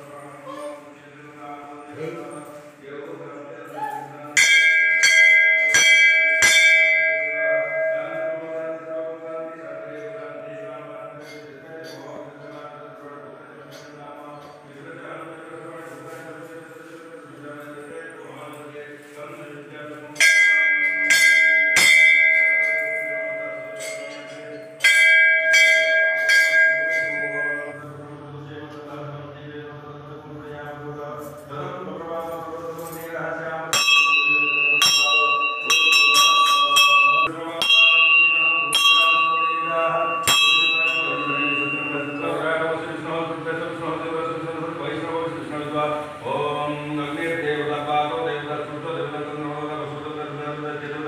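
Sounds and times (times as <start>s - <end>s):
brass bell ringing: 4.4s - 9.2s, 20.2s - 27.8s, 33.7s - 43.4s.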